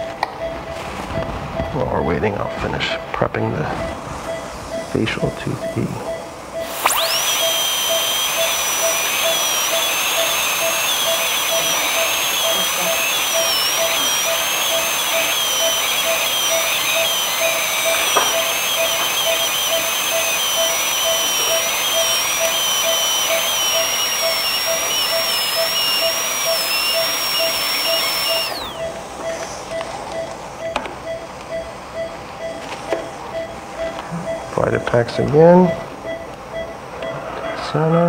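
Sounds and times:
dental drill whining: 6.6 - 29.7.

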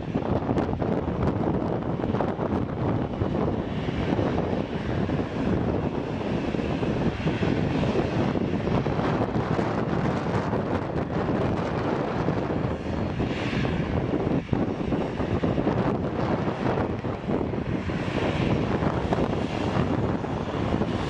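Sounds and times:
high engine whine: 0.0 - 21.0
jet engine rumble: 0.0 - 21.0
wind buffeting microphone: 0.0 - 21.0.

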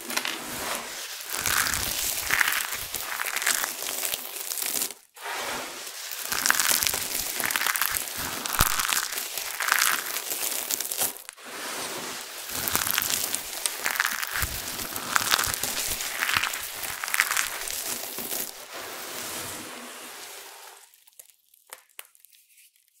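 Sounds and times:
hands crunching dry crumbs: 0.1 - 5.1, 5.8 - 11.4, 12.2 - 18.8.

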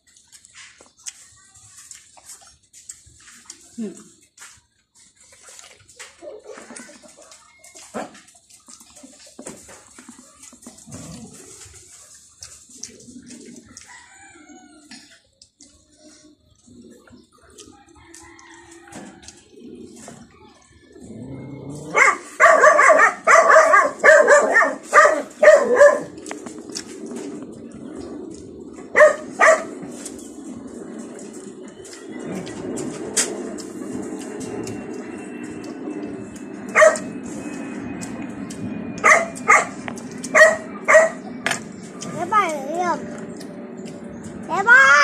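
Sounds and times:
dog barking: 21.9 - 26.2, 28.9 - 29.8, 36.7 - 37.1, 39.0 - 41.2.

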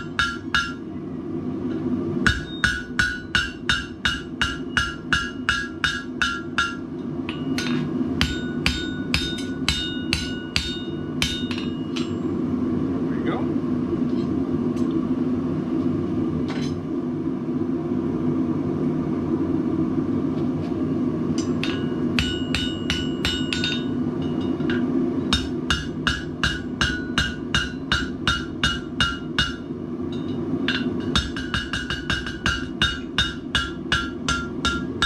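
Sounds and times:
hammer striking hot steel on anvil: 0.0 - 0.9, 1.7 - 12.3, 21.3 - 35.0
steady low hum: 0.0 - 35.0.

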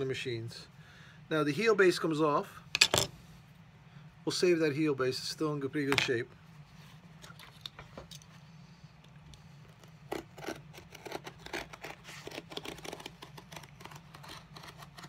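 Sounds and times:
hand tools snipping and scraping leather: 9.7 - 15.0.

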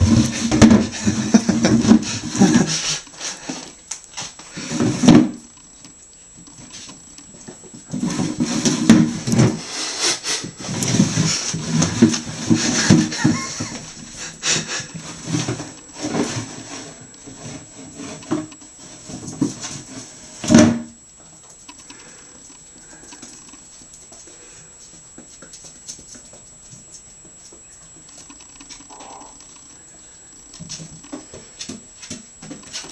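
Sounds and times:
plastic bowl scraping on floor: 0.0 - 3.0, 4.5 - 5.4, 7.9 - 13.9.

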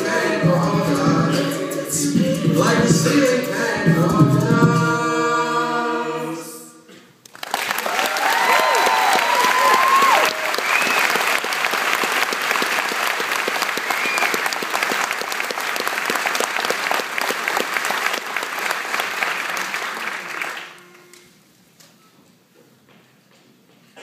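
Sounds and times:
audience applauding: 7.2 - 21.1
high-pitched calls from crowd: 7.9 - 11.4.

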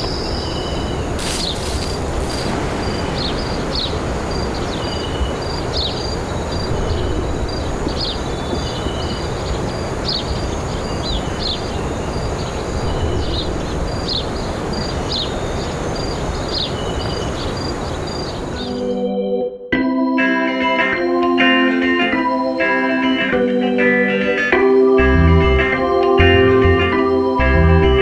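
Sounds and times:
whistled bird and insect notes: 0.0 - 18.9
steady rushing background: 1.0 - 10.2.

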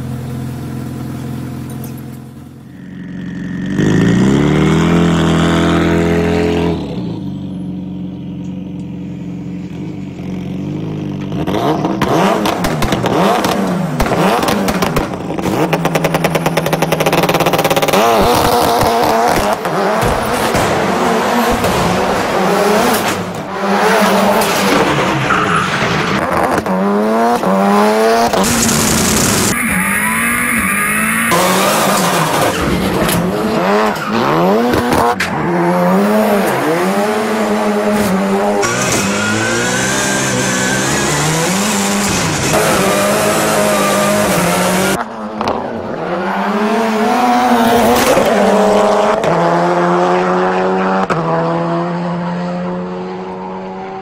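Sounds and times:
rally car engine revving: 1.0 - 54.0
tyres squealing: 29.5 - 34.5.

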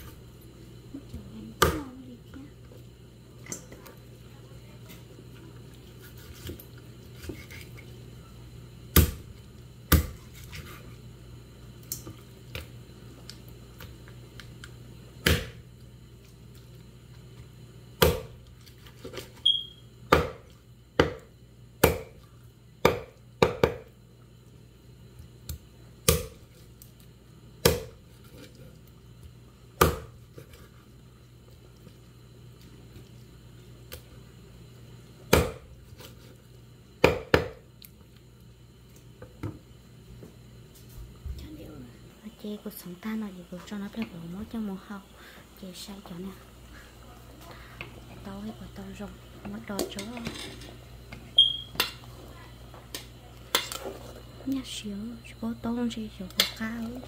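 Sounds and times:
steady low hum: 0.0 - 57.0
knife chopping meat on wooden board: 18.0 - 18.4, 20.1 - 22.2, 22.8 - 23.9, 26.1 - 26.4, 27.6 - 28.0, 29.8 - 30.2, 35.3 - 35.7, 37.0 - 37.6.

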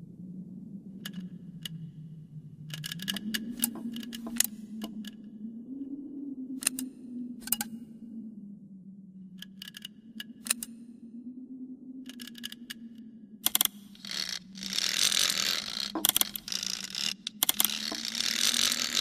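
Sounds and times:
sharp metallic clicks and ticks: 2.7 - 5.2, 9.4 - 10.7, 12.1 - 12.8, 13.4 - 19.0.

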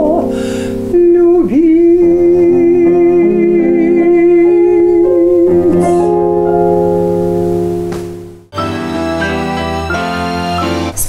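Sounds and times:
plucked strings and keyboard: 0.0 - 11.0
woman singing: 0.9 - 5.8.

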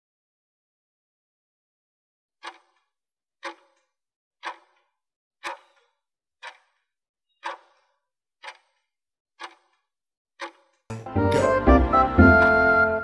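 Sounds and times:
clock ticking: 2.4 - 9.8, 10.4 - 13.0.

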